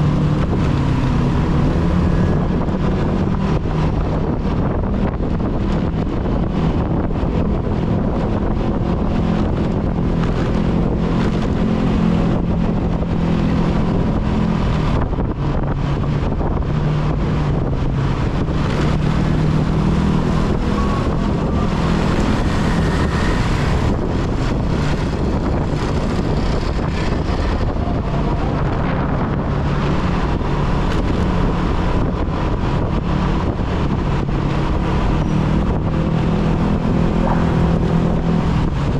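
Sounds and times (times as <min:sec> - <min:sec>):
motorcycle engine running: 0:00.0 - 0:38.9
road traffic: 0:00.0 - 0:38.9
wind noise on microphone: 0:00.0 - 0:38.9.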